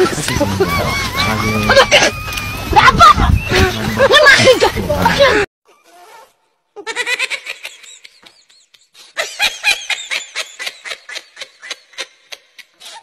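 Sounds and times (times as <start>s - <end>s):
high-pitched laughter: 0.0s - 5.5s, 6.8s - 13.0s.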